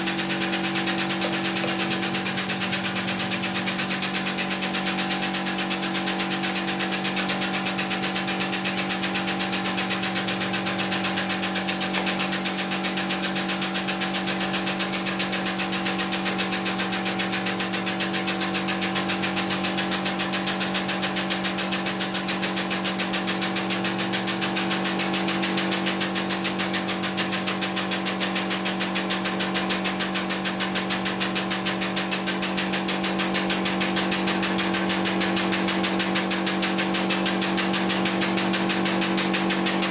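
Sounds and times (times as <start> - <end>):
hydraulic press power unit humming: 0.0 - 4.7.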